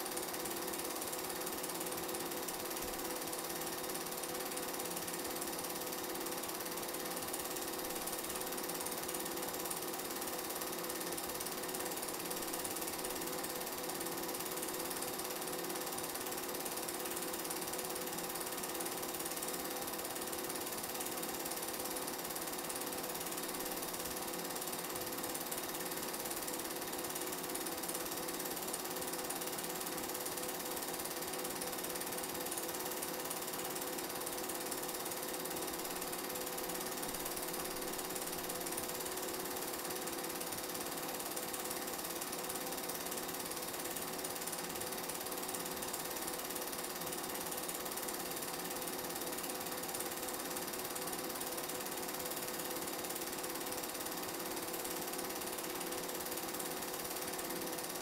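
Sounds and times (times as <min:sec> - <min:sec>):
film projector clattering: 0:00.0 - 0:58.0.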